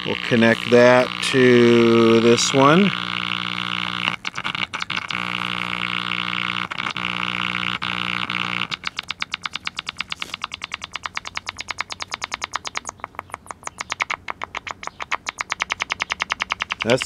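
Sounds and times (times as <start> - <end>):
radio speaker hum: 0.0 - 10.5, 16.6 - 17.0
rapid chirping pulses: 0.0 - 17.0.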